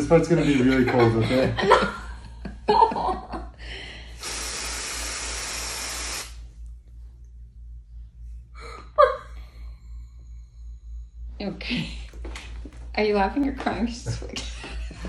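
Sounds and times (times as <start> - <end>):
aerosol spray hissing: 4.2 - 6.4.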